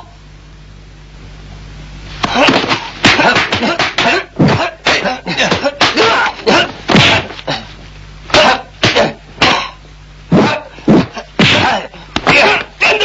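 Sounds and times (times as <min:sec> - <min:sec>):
punch and kick impacts: 0:02.2 - 0:07.4, 0:08.3 - 0:09.7, 0:11.0 - 0:12.7
fighters shouting and grunting: 0:02.3 - 0:07.3, 0:11.4 - 0:13.0.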